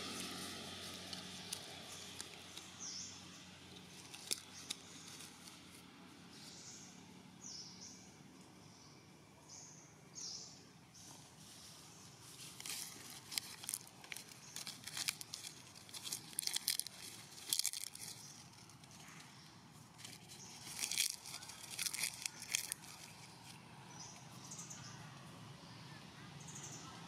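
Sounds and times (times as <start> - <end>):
dry crackling and rustling: 0.0 - 6.5, 11.5 - 24.3.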